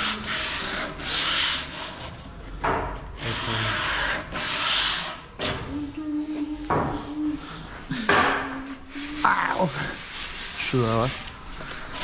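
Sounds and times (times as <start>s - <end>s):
sandpaper rubbing on wood: 0.0s - 2.2s, 3.2s - 5.3s, 8.8s - 12.0s.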